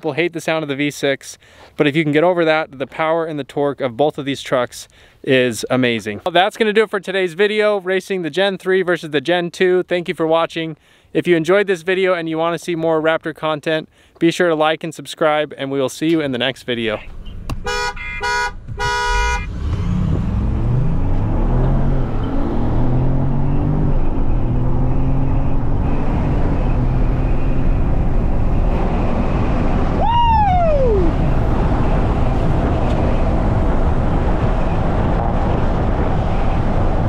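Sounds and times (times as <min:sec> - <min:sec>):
road noise: 0:15.7 - 0:37.0
car horn toot: 0:17.6 - 0:19.6
truck engine revving: 0:18.8 - 0:37.0
loud falling tone: 0:29.1 - 0:31.8.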